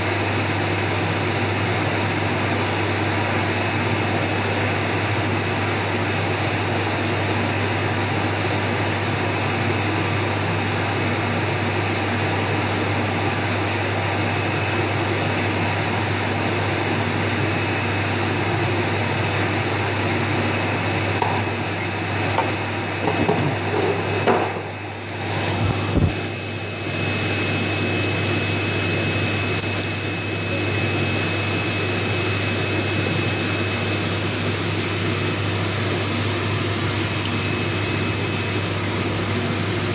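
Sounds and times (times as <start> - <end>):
machine hum and hiss: 0.0 - 39.9
high whines: 11.6 - 39.9.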